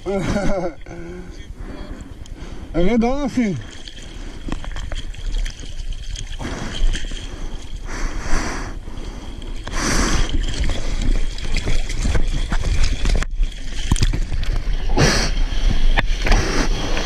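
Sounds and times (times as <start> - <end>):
rushes of water: 2.0 - 17.0
seawater sloshing and splashing: 3.4 - 7.9, 9.0 - 17.0.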